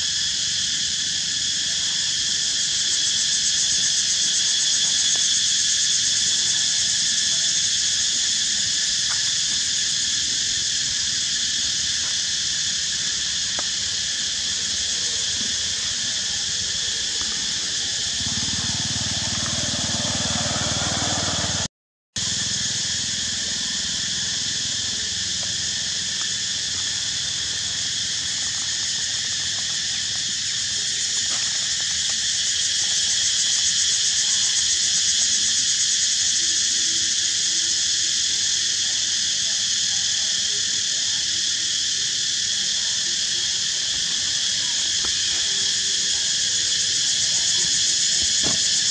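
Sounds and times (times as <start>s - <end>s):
insect chorus droning: 0.0s - 48.9s.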